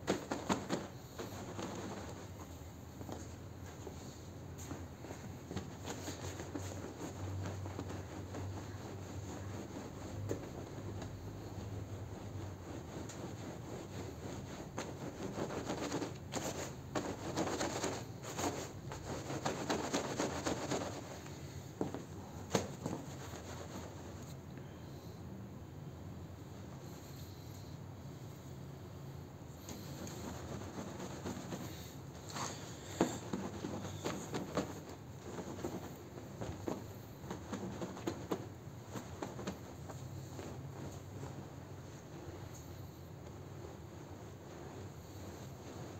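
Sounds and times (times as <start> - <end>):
broom scrubbing wet rug: 5.6 - 21.6.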